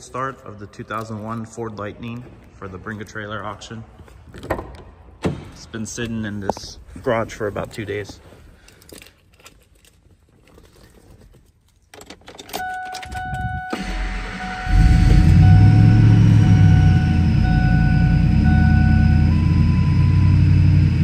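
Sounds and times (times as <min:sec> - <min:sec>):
keys rattling in ignition: 0:08.5 - 0:13.8
dashboard chime: 0:12.6 - 0:20.5
engine cranking and idling: 0:13.2 - 0:21.0.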